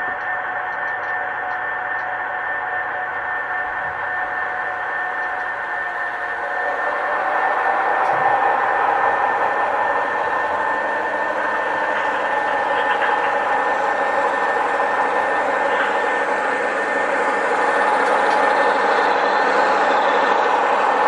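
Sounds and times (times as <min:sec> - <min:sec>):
diesel engine sound from small speakers: 0:03.0 - 0:19.3.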